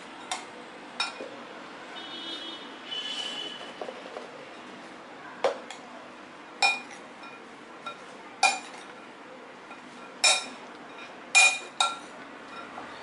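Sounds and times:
metal spoon clinking on glass bowl: 0:06.6 - 0:08.8, 0:10.2 - 0:12.7.

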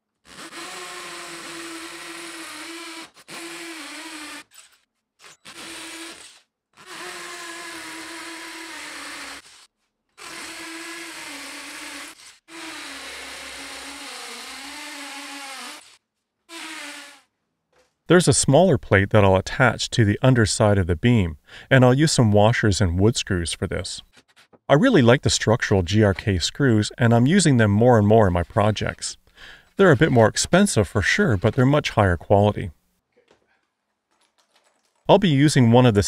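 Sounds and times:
drill drilling into concrete: 0:00.2 - 0:17.3.

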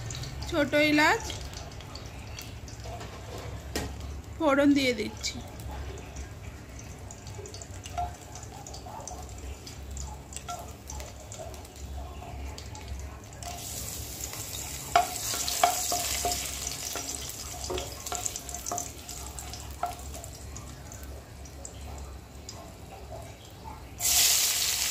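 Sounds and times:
spices sizzling in hot oil: 0:00.0 - 0:24.9
wooden spatula clicking on pan: 0:14.9 - 0:20.3.

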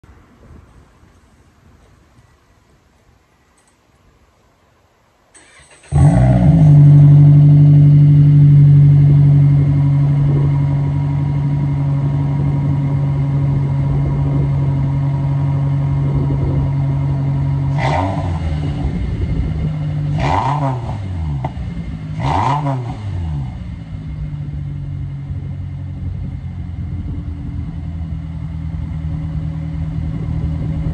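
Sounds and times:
car engine starting and idling: 0:05.3 - 0:30.9
engine revving: 0:05.4 - 0:23.9.

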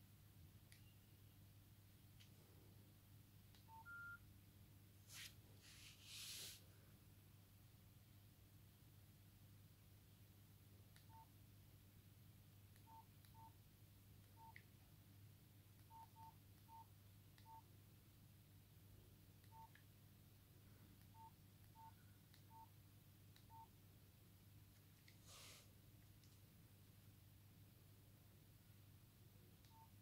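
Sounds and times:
phone keypad beeps: 0:03.6 - 0:04.2, 0:11.1 - 0:11.3, 0:12.8 - 0:13.6, 0:14.4 - 0:14.6, 0:15.9 - 0:17.7, 0:19.5 - 0:19.8, 0:21.1 - 0:22.7, 0:23.5 - 0:23.7, 0:29.7 - 0:30.0.

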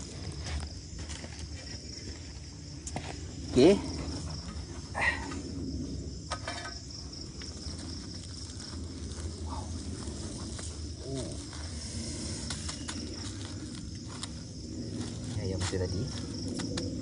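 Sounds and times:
scraping and rustling of soil: 0:00.0 - 0:05.5, 0:06.4 - 0:17.0
crickets chirping: 0:00.0 - 0:17.0.

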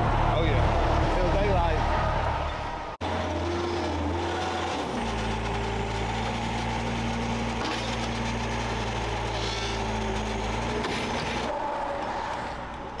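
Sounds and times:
truck diesel engine running: 0:00.0 - 0:13.0.

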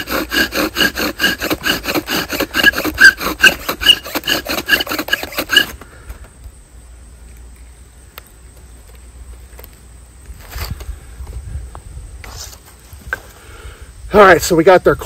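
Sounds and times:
bow drill spindle grinding and squeaking: 0:00.0 - 0:05.8.

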